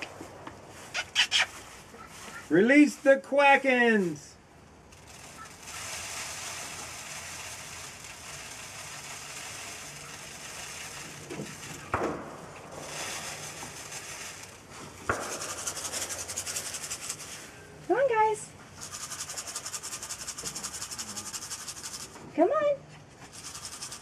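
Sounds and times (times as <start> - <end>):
fast patter of ticks: 4.9 - 11.9, 12.8 - 17.4, 18.8 - 22.2, 23.2 - 24.0
scratchy rustling: 5.0 - 11.9, 12.8 - 17.6, 18.6 - 22.2, 23.0 - 24.0.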